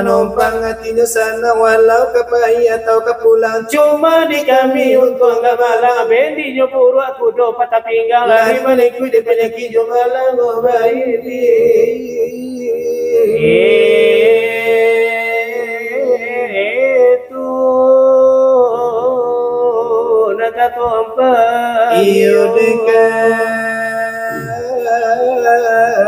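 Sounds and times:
men singing devotional chant: 0.0 - 26.0.

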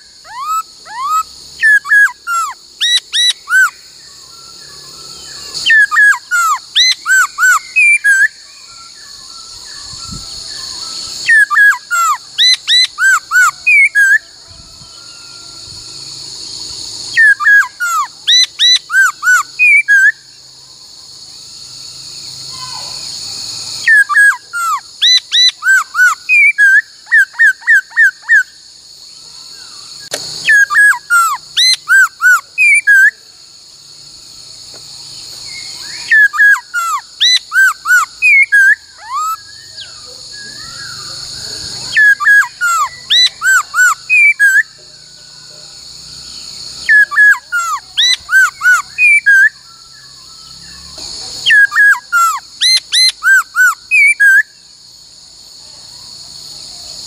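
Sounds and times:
bird singing whistled phrases: 0.0 - 14.3, 17.1 - 20.4, 23.8 - 28.6, 30.0 - 33.2, 35.4 - 44.8, 46.8 - 54.6
insect chorus: 0.0 - 57.0.

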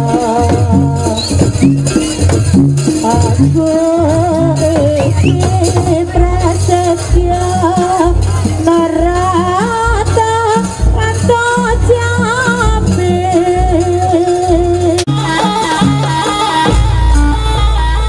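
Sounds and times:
drum and gong beat: 0.0 - 18.0
gamelan ensemble melody: 12.8 - 18.0.

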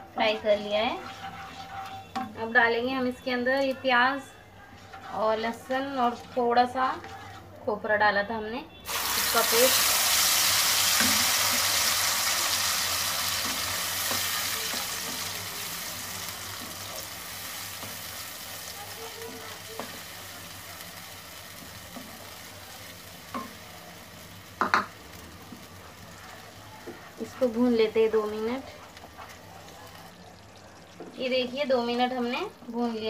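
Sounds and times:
paste sizzling in hot oil: 0.1 - 2.4, 4.8 - 7.4, 8.9 - 33.0.

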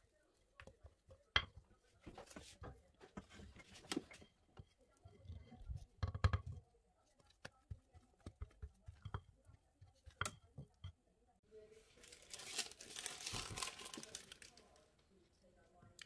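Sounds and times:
spatula knocking against bowl: 5.9 - 6.6, 7.4 - 11.0
plastic piping bag crinkling: 11.9 - 14.8.

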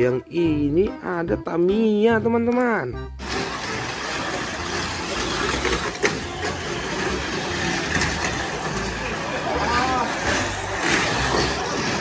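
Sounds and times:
toy car motors whirring: 3.2 - 12.0.

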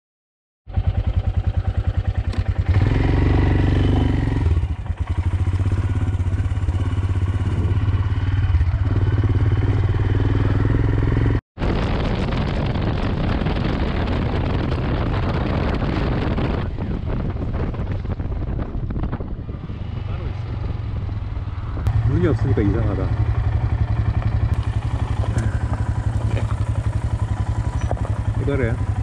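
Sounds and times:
motorcycle engine thumping: 0.7 - 15.2, 20.8 - 29.0
wind rushing over microphone: 2.6 - 29.0.

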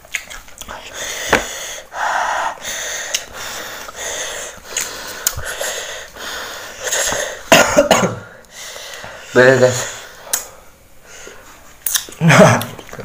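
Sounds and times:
person breathing hard through mouth: 0.8 - 7.5.

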